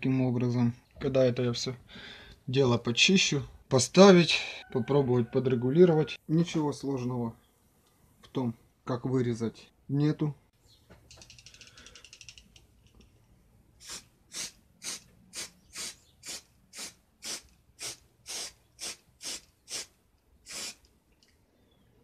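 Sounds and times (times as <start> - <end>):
aerosol spray can squirts: 13.8 - 20.9.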